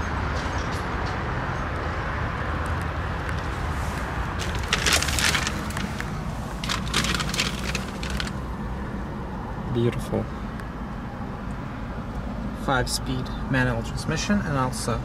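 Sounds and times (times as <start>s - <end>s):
rustling and scuffing: 3.4s - 8.4s.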